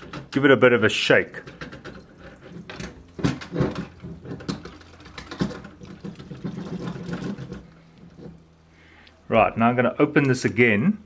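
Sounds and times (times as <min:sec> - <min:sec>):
liquid sloshing in radiator: 0:01.3 - 0:08.6
knocks and rustles of handling: 0:01.4 - 0:08.5
pump humming: 0:01.5 - 0:09.0.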